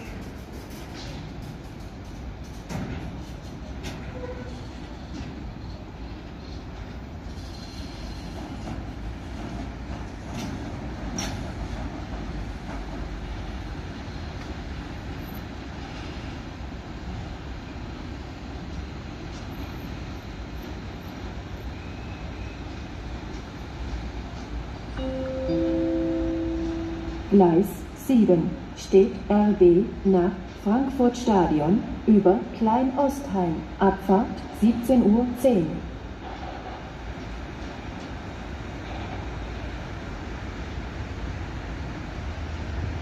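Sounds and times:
sharp clicks of train wheels: 0.0s - 16.5s, 22.7s - 25.0s, 36.2s - 40.8s
freight train rolling past: 0.0s - 43.0s.

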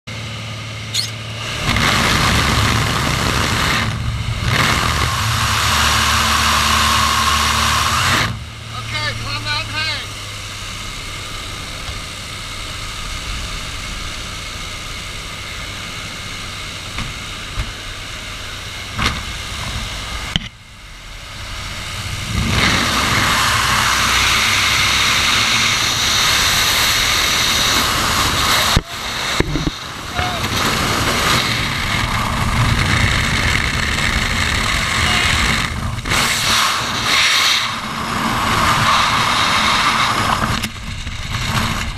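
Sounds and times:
airplane engine drone: 0.1s - 41.9s
wind rushing: 1.4s - 8.7s, 19.4s - 41.9s.

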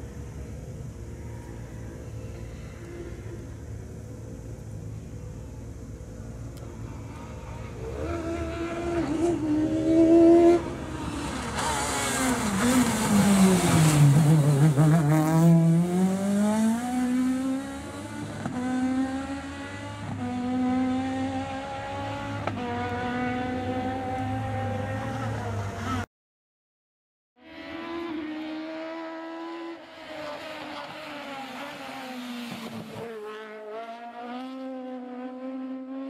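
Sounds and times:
rally car engine revving: 6.9s - 26.0s, 27.4s - 36.0s.

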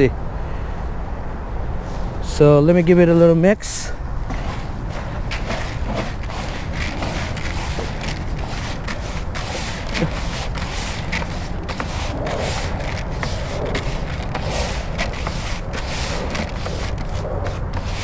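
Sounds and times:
wind on microphone: 4.0s - 18.0s
hand kneading wet oats: 4.2s - 18.0s.

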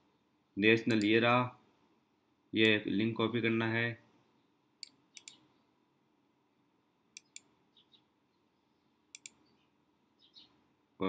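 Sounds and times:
computer mouse clicks: 0.9s - 1.1s, 4.8s - 5.4s, 7.2s - 7.5s, 9.1s - 9.4s.

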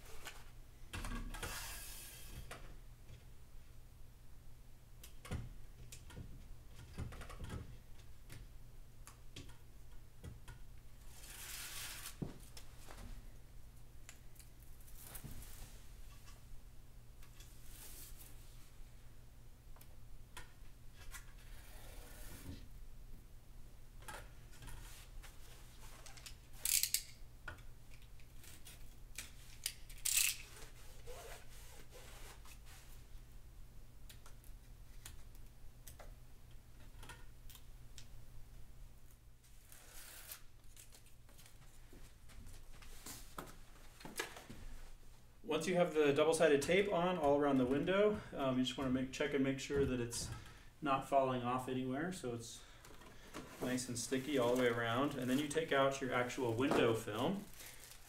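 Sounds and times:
tape scratching: 11.1s - 12.2s, 28.3s - 32.9s, 39.4s - 41.1s
tape rasping rustle: 11.1s - 13.0s, 28.2s - 33.0s, 39.4s - 44.4s, 53.1s - 58.0s.

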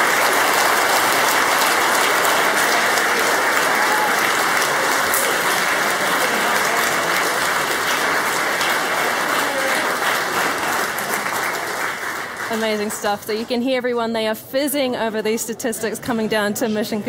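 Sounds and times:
people applauding: 0.0s - 13.6s.

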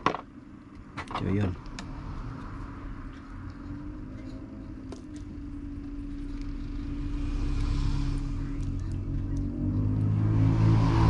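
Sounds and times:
low engine hum: 0.2s - 11.0s.

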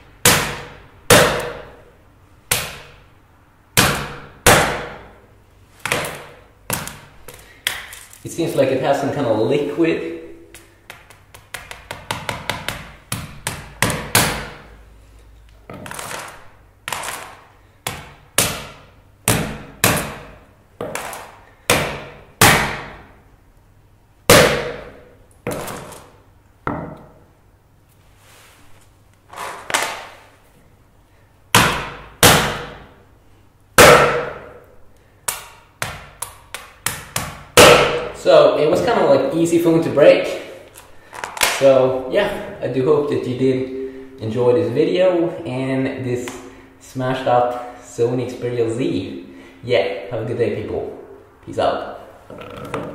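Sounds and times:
sledgehammer striking phone glass: 0.2s - 1.7s, 3.8s - 5.1s, 15.8s - 23.0s, 24.3s - 26.0s, 31.5s - 32.8s, 33.8s - 34.6s, 36.9s - 38.2s.

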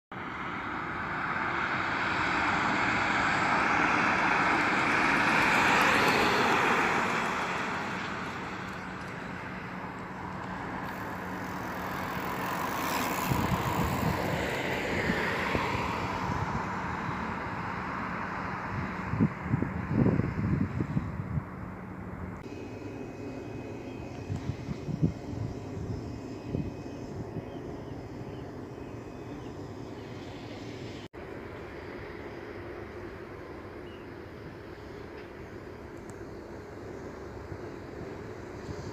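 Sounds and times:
vehicle passing: 0.2s - 23.6s
wind buffeting microphone: 2.2s - 22.4s, 23.9s - 28.6s.

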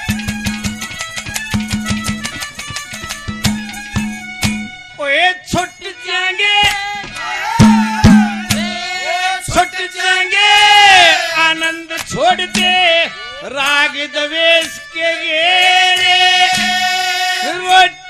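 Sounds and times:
drum strikes: 0.0s - 4.8s, 7.1s - 9.6s, 12.0s - 12.9s, 16.5s - 17.1s
man singing through loudspeakers: 5.0s - 18.0s.

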